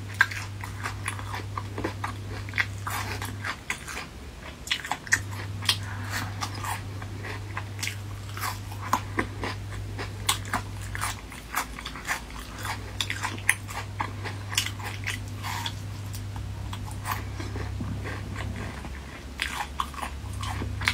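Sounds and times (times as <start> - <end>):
person chewing with open mouth: 0.0 - 20.9
steady low hum: 0.0 - 20.9.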